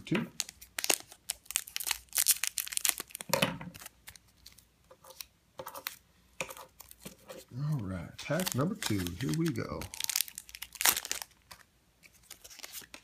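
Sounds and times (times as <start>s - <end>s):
foil wrapper crinkling: 0.4s - 4.6s, 8.2s - 13.0s.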